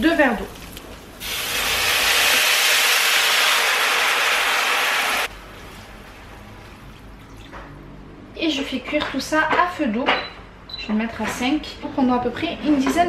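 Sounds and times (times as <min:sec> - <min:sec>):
water hissing in a hot pan: 0:01.2 - 0:05.3.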